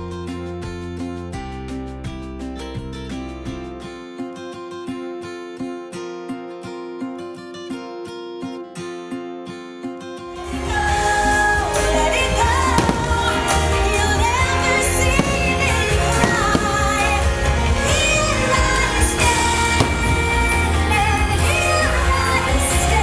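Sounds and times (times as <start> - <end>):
music with singing over loudspeakers: 10.1 - 23.0
fireworks bangs: 12.6 - 21.6.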